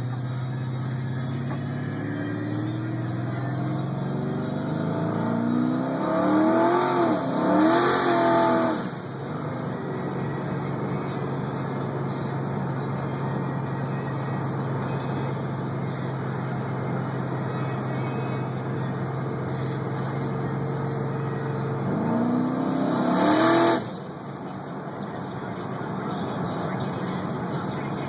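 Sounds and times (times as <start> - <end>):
car engine drone from inside cabin: 0.0 - 28.0.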